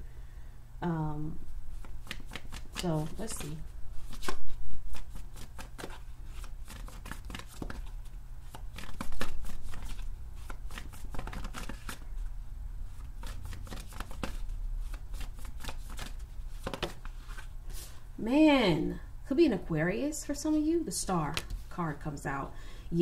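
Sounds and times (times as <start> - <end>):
steady low hum: 0.0 - 23.0
cards being shuffled: 1.7 - 12.3, 12.9 - 17.5, 21.3 - 21.7.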